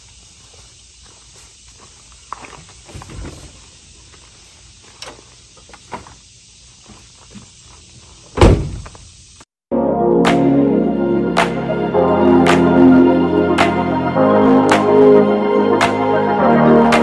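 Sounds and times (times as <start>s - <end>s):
van door slamming shut: 8.4s - 8.9s
van door swinging open: 8.4s - 8.9s.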